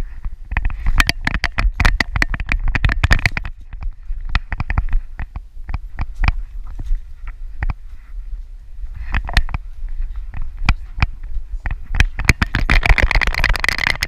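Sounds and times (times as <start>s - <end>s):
camera mount clicking and knocking: 0.5s - 3.5s.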